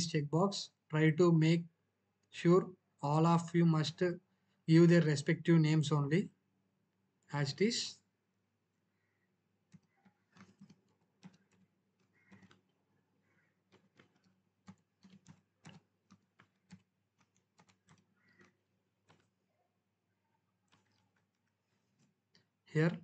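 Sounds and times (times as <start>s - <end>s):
keyboard typing: 9.6s - 19.6s, 20.3s - 23.0s.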